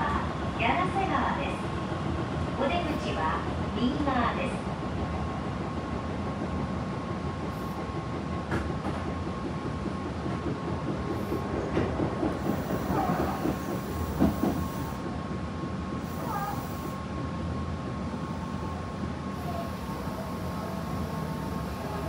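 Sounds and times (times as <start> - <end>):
train wheels rumbling on rail: 0.0 - 22.0
rail-joint clicks: 7.4 - 15.1.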